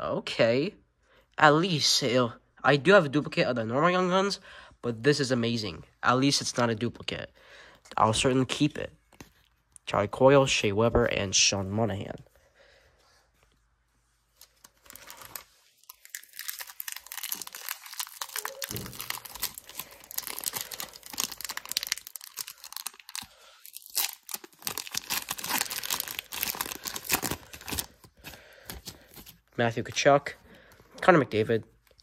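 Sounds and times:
foil wrapper tearing and crinkling: 14.4 - 29.4.

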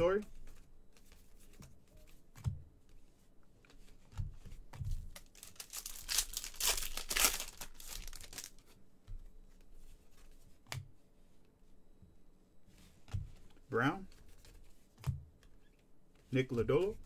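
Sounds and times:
cards scraping and rustling: 3.6 - 8.8.

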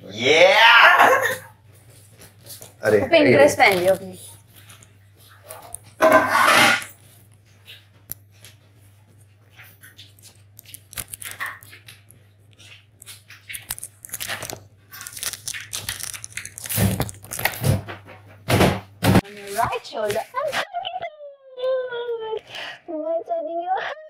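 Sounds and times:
objects being handled: 3.6 - 18.4.

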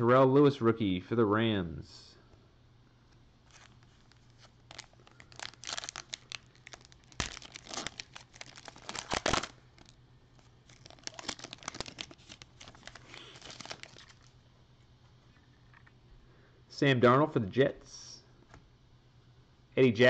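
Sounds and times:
foil wrapper tearing and crinkling: 3.5 - 14.3.

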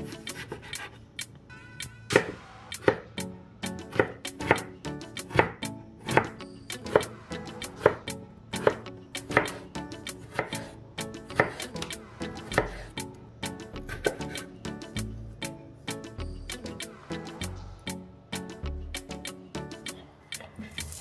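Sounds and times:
soft background music: 0.0 - 21.0
knife chopping on wooden board: 2.1 - 3.1, 3.9 - 6.3, 10.3 - 10.7, 11.3 - 11.6, 13.9 - 14.5.

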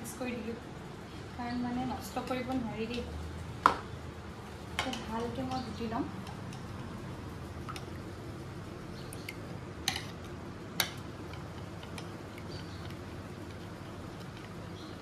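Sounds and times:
steady low hum: 0.0 - 15.0
spoon stirring cream in bowl: 9.2 - 15.0.

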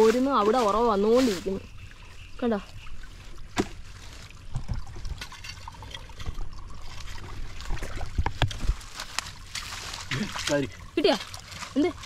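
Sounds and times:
pond water splashing: 0.0 - 12.0.

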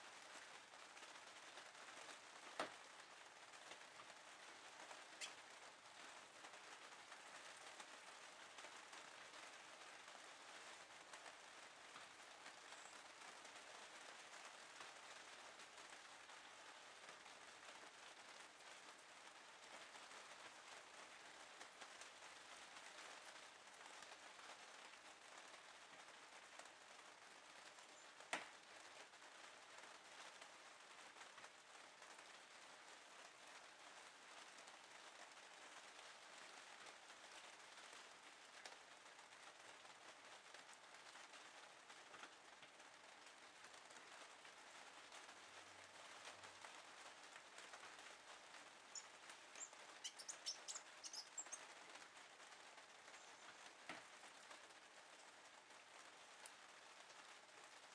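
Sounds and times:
low steady hiss: 0.0 - 57.9
bird chirping high-pitched: 49.6 - 51.6.

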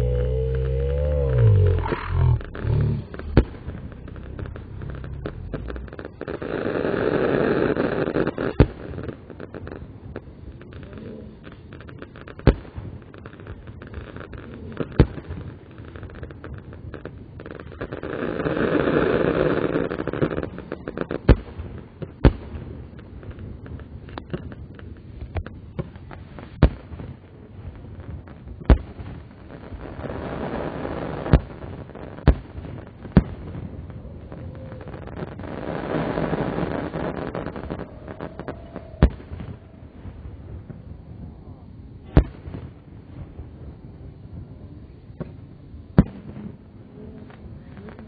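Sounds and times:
rushing swell: 0.0 - 6.2
fireworks bangs: 0.0 - 44.5
background rumble: 0.0 - 48.0.

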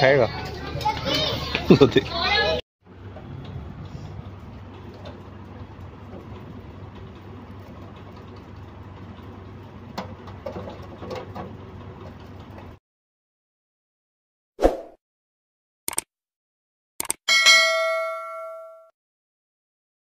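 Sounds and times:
low mechanical hum with hiss: 0.3 - 12.8.

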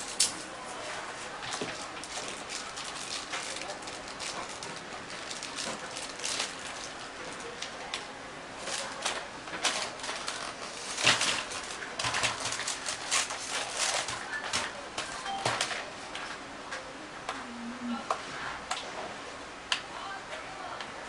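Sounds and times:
plastic packaging crinkling: 1.3 - 15.9.

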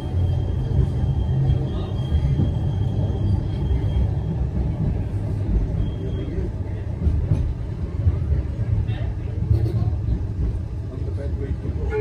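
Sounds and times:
tram wheels rumbling: 0.0 - 12.0.

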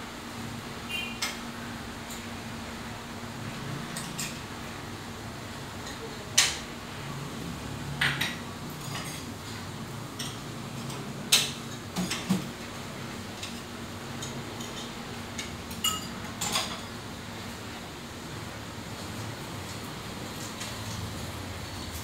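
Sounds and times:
dishes and cutlery clinking: 8.0 - 9.3, 10.2 - 12.5, 13.4 - 17.0.

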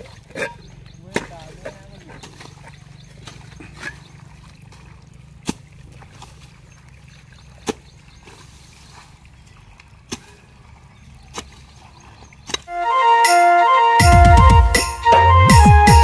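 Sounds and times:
hoe chopping into wet earth: 5.4 - 6.4, 7.6 - 8.4, 10.1 - 10.4, 11.3 - 11.7, 12.4 - 12.7.

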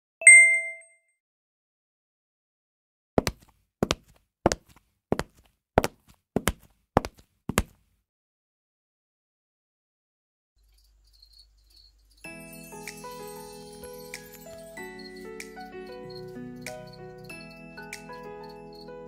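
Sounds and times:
short bright ding: 0.2 - 0.9.

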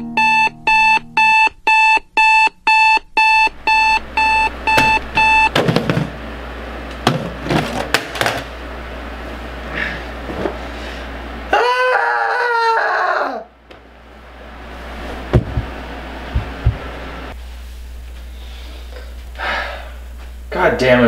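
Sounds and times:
alarm clock beeping: 0.0 - 5.6
soft knocks: 15.3 - 16.9.

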